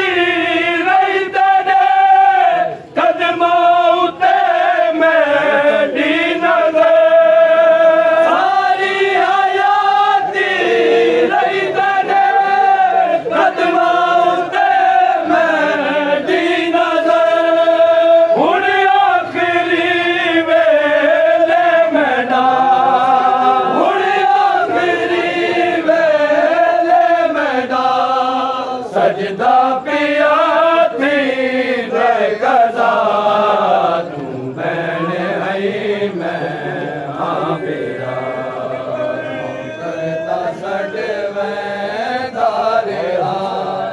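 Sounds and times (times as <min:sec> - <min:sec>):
men chanting in unison: 0:00.0 - 0:43.9.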